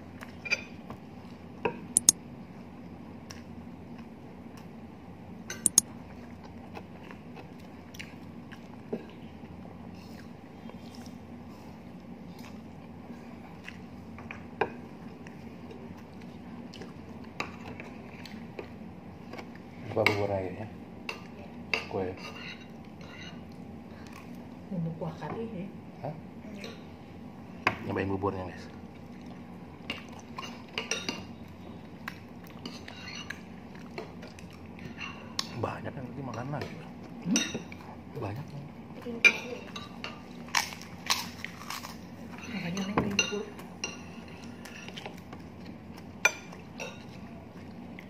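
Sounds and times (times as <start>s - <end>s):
low room hum: 0.0s - 48.0s
soft chewing: 5.7s - 19.7s, 28.7s - 30.8s, 32.0s - 35.6s, 43.6s - 48.0s.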